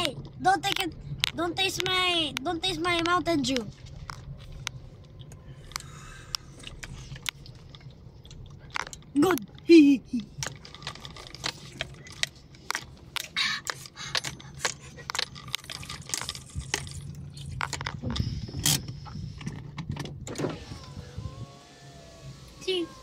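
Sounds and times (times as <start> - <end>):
steady low hum: 0.0 - 23.0
clicks and rattles: 10.4 - 20.2.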